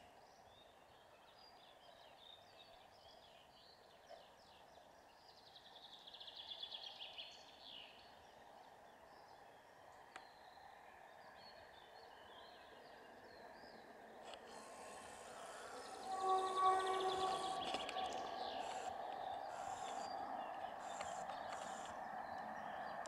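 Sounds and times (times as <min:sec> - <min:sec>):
faint birdsong: 0:00.0 - 0:23.0
faint click: 0:20.9 - 0:22.0.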